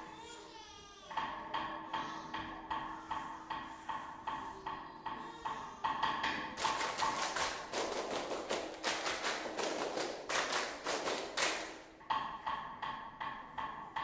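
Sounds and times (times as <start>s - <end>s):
children clapping in unison: 6.2s - 12.0s.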